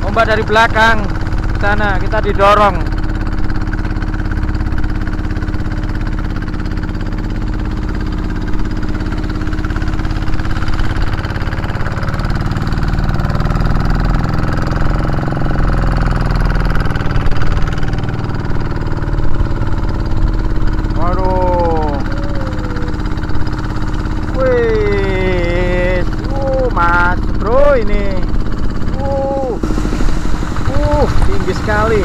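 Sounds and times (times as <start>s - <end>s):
boat engine running: 0.0s - 32.0s
wind: 0.0s - 32.0s
waves washing against hull: 29.6s - 32.0s.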